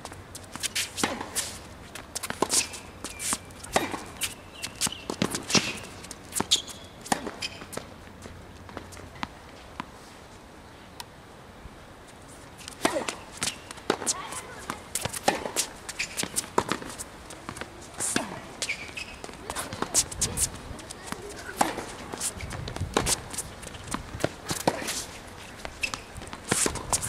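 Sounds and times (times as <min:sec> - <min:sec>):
shoes squeaking on court: 0:00.0 - 0:09.8, 0:12.3 - 0:27.0
racket hitting tennis ball: 0:00.6 - 0:01.6, 0:02.2 - 0:07.8, 0:12.6 - 0:27.0.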